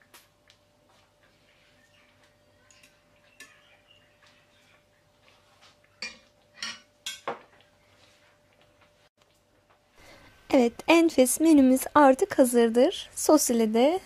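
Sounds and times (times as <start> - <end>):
plates and cutlery clinking: 6.0 - 7.5.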